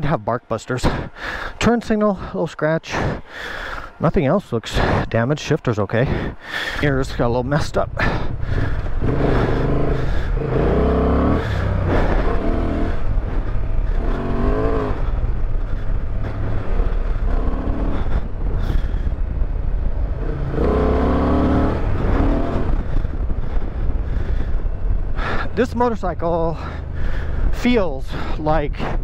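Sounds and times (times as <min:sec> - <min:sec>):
wind and road noise: 0:00.0 - 0:29.0
motorcycle engine revving: 0:05.9 - 0:27.6.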